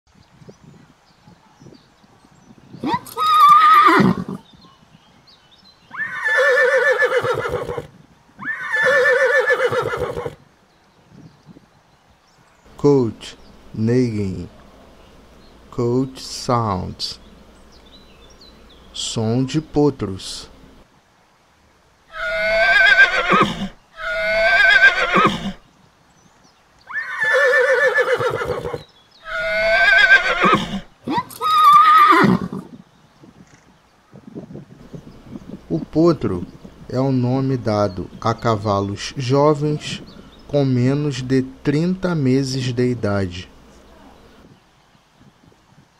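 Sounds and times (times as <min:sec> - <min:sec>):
foal whinnying: 0:02.8 - 0:04.4, 0:05.9 - 0:10.4, 0:22.1 - 0:25.6, 0:26.9 - 0:32.6.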